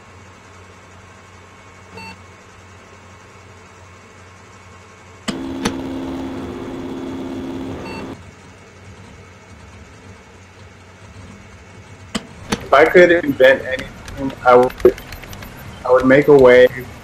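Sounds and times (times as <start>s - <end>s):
low electrical buzz: 0.0s - 8.4s
faint constant hum: 0.0s - 17.0s.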